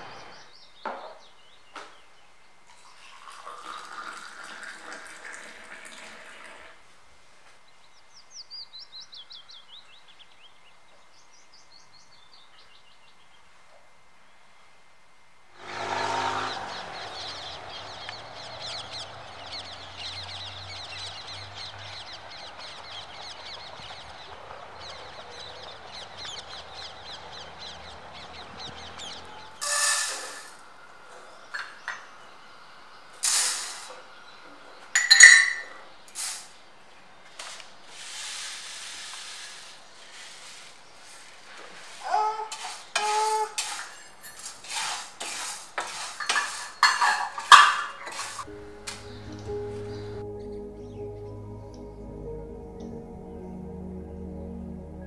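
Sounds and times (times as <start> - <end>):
small birds chirping: 0.0 - 2.6, 7.6 - 14.6, 15.6 - 43.5, 44.3 - 52.1
utensils clinking on pans: 35.0 - 35.8, 42.6 - 48.5.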